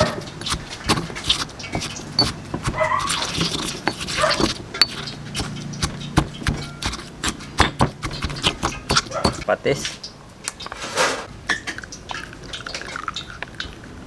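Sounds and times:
pestle pounding in a mortar: 0.0 - 9.5.

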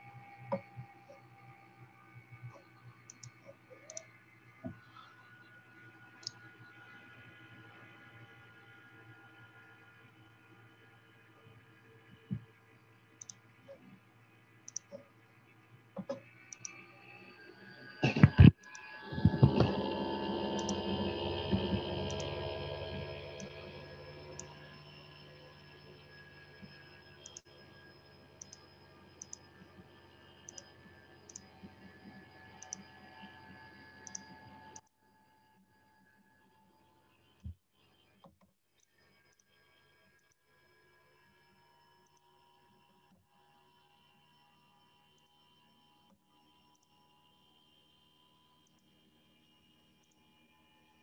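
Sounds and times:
faint steady hum: 0.0 - 51.0
faint clicks and taps: 12.1 - 12.6, 16.0 - 16.8.

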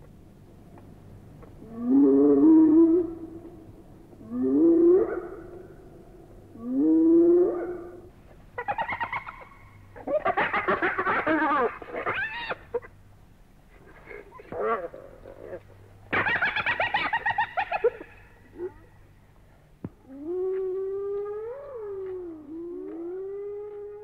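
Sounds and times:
hyena wavering calls: 1.6 - 12.9, 20.0 - 24.0
hyena whooping: 11.2 - 12.9, 20.0 - 24.0.

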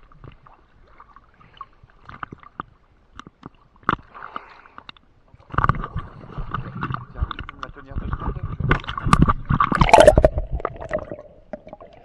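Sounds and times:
water sloshing against camera: 0.0 - 12.0
water clicks and ticks: 2.0 - 12.0
splashing and gurgling: 5.4 - 12.0.

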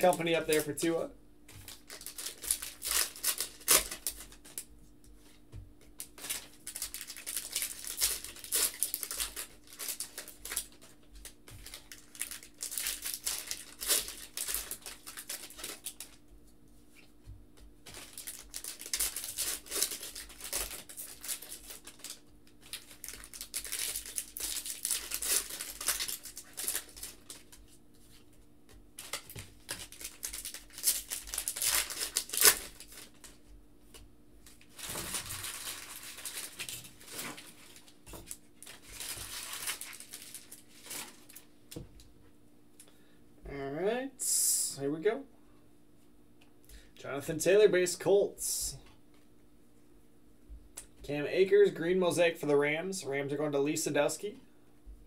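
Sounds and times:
foil wrappers crinkling and tearing: 0.0 - 1.0, 1.6 - 4.7, 5.8 - 16.2, 17.8 - 28.2, 29.0 - 33.4, 34.4 - 41.8.

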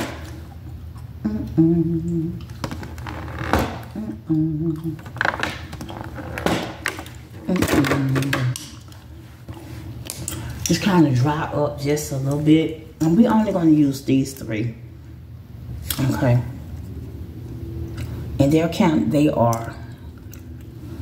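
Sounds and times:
woman humming: 1.2 - 2.6, 3.9 - 5.3.

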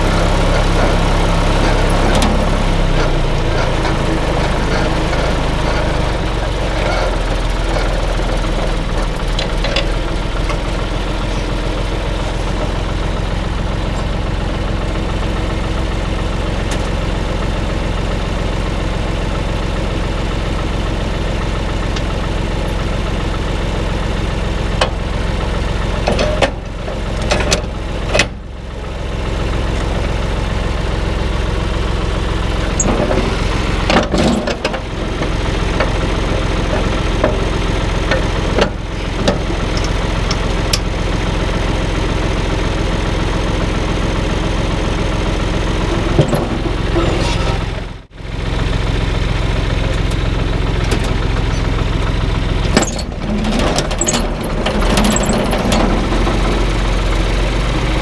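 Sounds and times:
tractor diesel engine running: 0.0 - 58.0
knocks and rattles: 45.9 - 47.9, 52.6 - 56.8.

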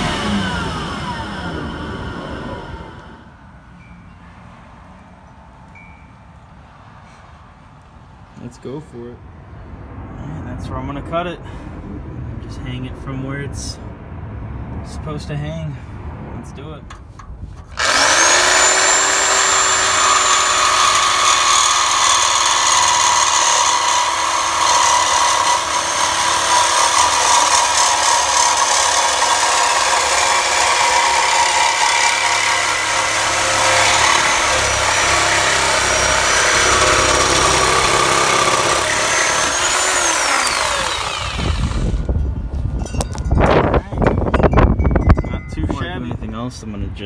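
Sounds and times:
reciprocating saw cutting metal pipe: 0.0 - 3.2, 17.7 - 42.1.

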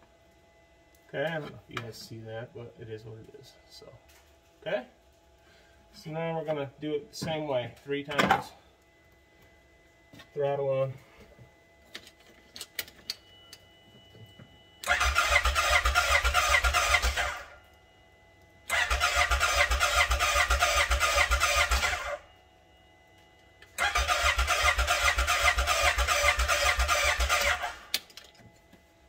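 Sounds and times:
starter cranking engine: 14.8 - 17.5, 18.7 - 22.1, 23.8 - 27.9.

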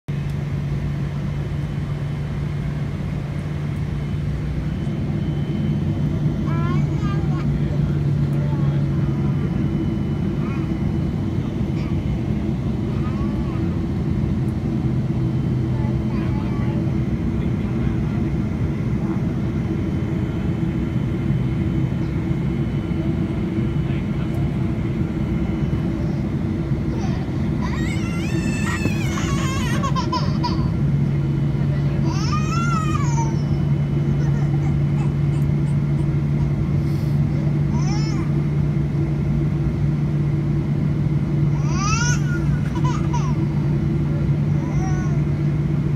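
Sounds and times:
airplane cabin engine drone: 0.1 - 45.9
airflow: 34.8 - 37.7.

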